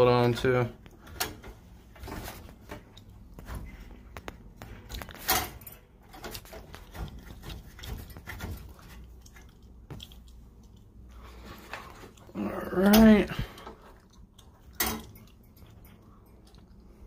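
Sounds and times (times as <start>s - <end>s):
copper tubing being handled: 0.8s - 17.0s.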